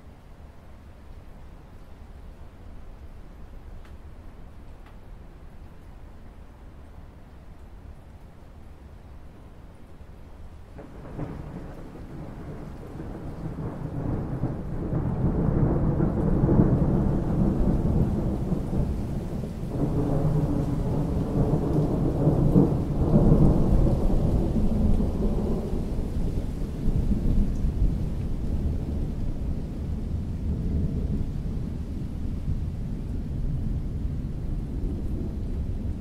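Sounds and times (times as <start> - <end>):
rain falling on water: 0.0 - 36.0
thunder rolling: 10.8 - 36.0.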